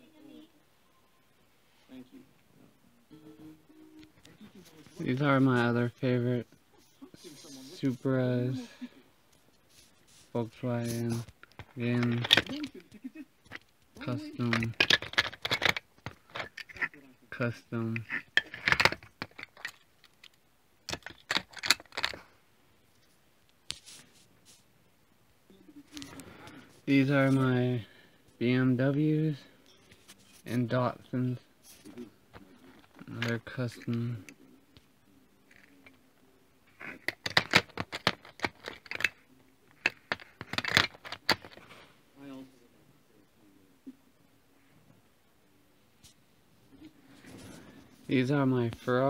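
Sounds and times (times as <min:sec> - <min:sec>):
toy cars clicking and clattering: 0:11.5 - 0:12.7, 0:13.5 - 0:17.0, 0:17.9 - 0:22.2, 0:36.7 - 0:41.6
toy cars clicking together: 0:36.8 - 0:39.2.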